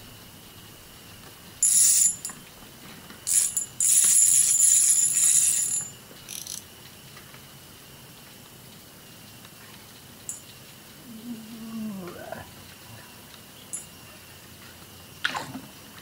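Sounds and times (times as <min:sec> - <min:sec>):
fishing reel ratchet whirring: 0:01.6 - 0:02.4, 0:03.3 - 0:06.7.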